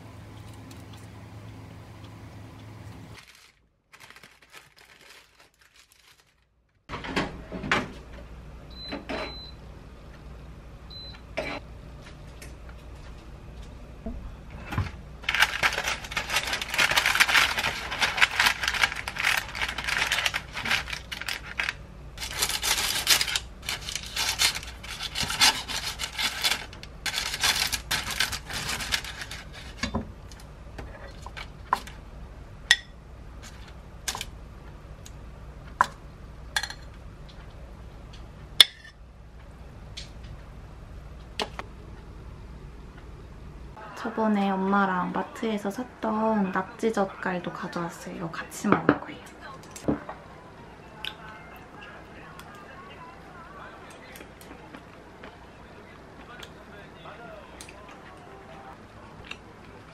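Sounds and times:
baking paper rustling: 3.2 - 6.8, 15.2 - 30.0.

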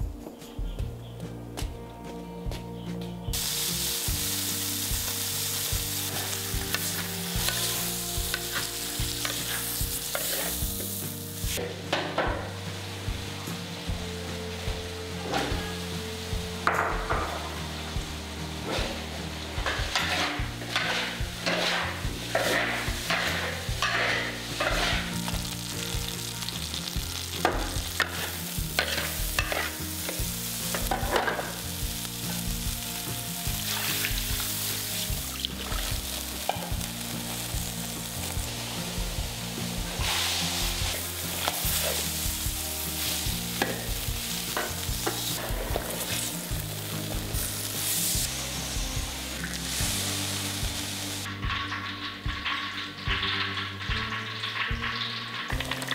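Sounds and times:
vegetables sizzling in a wok: 3.3 - 55.9
water hissing in hot wok: 3.3 - 55.9
spatula scraping a wok: 5.9 - 11.6, 18.5 - 32.6, 33.4 - 48.8.

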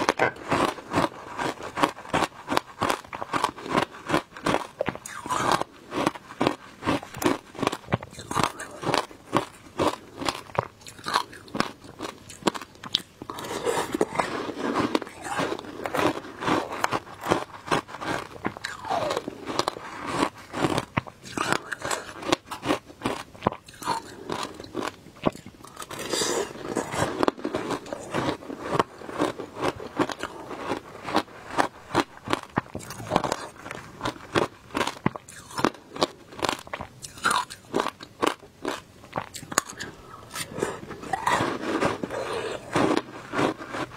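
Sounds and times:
crunching ice being chewed: 0.0 - 43.9.

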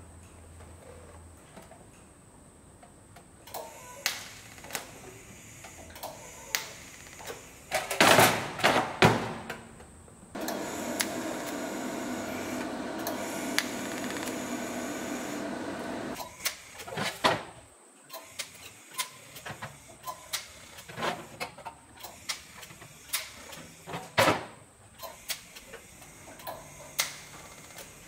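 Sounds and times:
welding clicks and snaps: 3.4 - 5.0, 5.6 - 7.9, 10.4 - 16.7, 26.4 - 27.9
welding arc buzz: 10.4 - 16.8.

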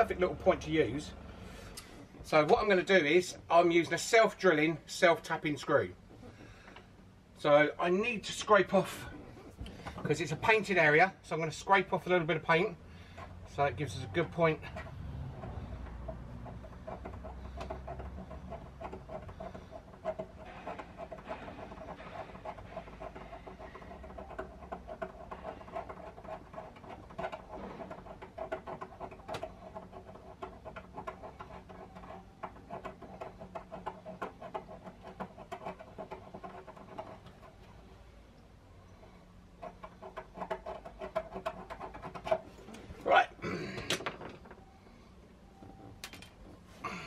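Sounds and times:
scraping paint off metal: 11.8 - 37.9, 38.9 - 43.0.

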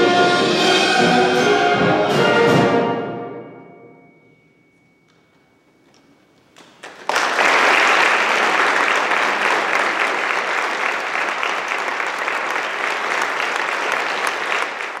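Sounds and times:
audience applauding: 6.6 - 15.0.

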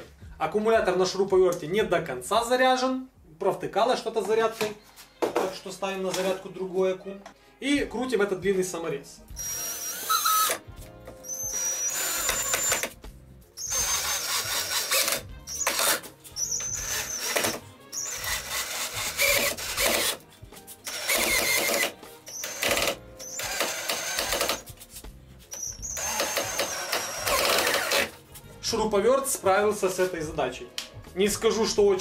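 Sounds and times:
cordless drill driving screw into wood: 9.4 - 10.6, 11.2 - 13.0, 13.6 - 20.2, 20.8 - 24.7, 25.6 - 28.2.

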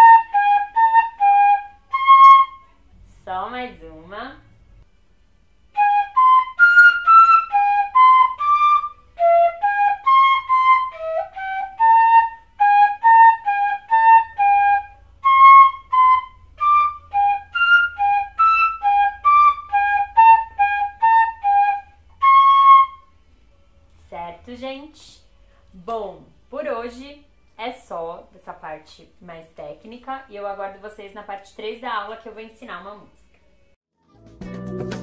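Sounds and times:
fife melody: 0.0 - 4.2, 5.7 - 23.3.

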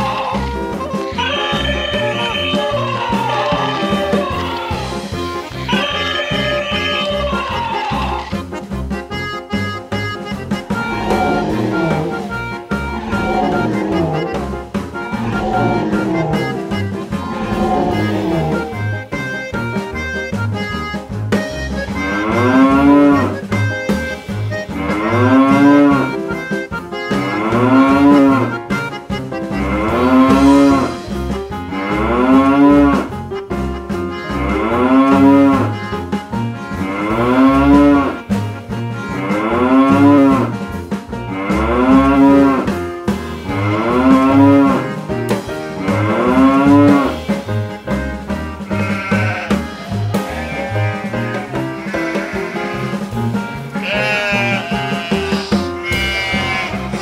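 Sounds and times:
cow mooing: 0.0 - 8.5, 10.6 - 19.0, 22.0 - 23.4, 24.6 - 26.2, 27.1 - 28.6, 29.6 - 31.1, 31.7 - 33.1, 34.1 - 35.8, 36.8 - 38.3, 39.1 - 40.6, 41.3 - 42.8, 43.4 - 45.0, 45.8 - 47.5, 48.6 - 53.1, 53.8 - 57.0
children's music with steady beat: 0.0 - 57.0.

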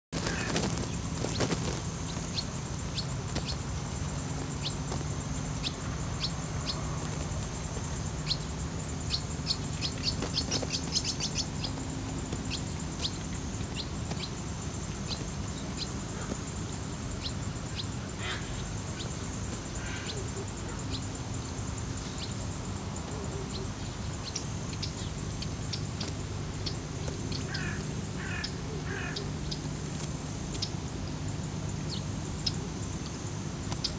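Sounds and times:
bird chirping: 0.2 - 33.9.

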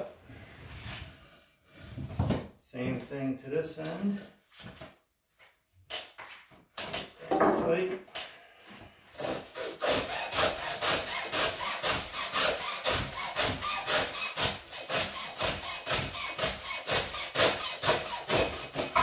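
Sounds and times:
hacksaw cutting rope: 9.2 - 19.0.

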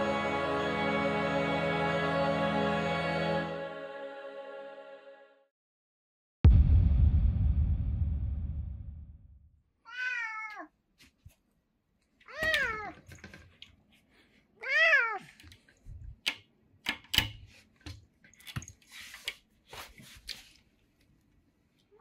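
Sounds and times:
cat meowing: 9.9 - 10.7, 12.3 - 13.0, 14.6 - 15.3.

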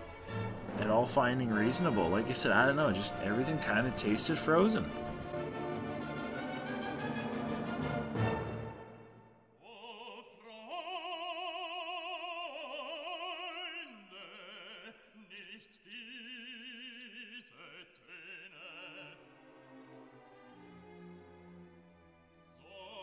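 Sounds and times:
operatic voice singing: 0.7 - 5.2, 9.6 - 19.6, 22.6 - 23.0.

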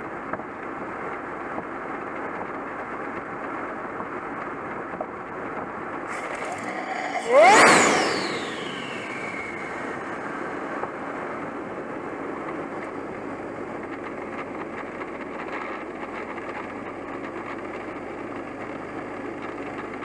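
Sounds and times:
car engine idling: 5.9 - 20.0
turbo whistle falling: 6.1 - 10.2.

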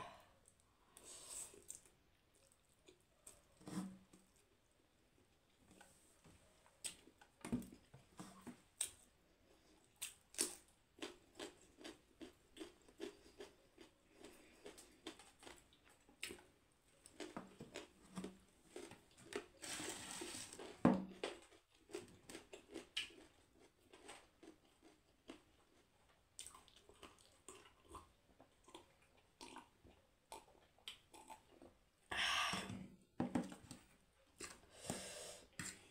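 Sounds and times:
chewing and crunching: 6.7 - 19.6, 20.6 - 31.8.

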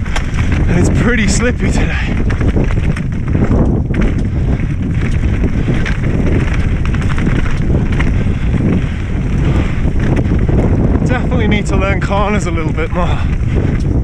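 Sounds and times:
bike knocks and rattles: 0.0 - 14.0
bike tyres rumbling over stony trail: 0.0 - 14.0
wind buffeting microphone: 0.0 - 14.0.

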